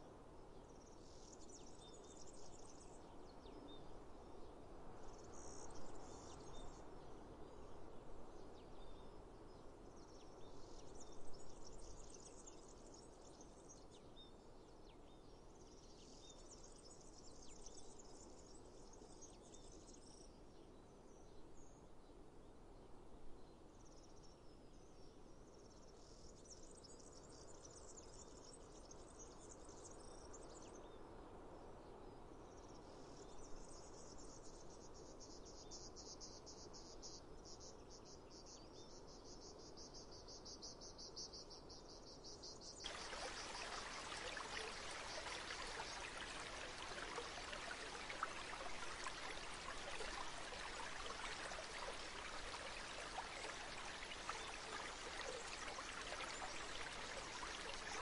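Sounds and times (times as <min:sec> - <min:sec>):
running water rushing: 0:42.8 - 0:58.0.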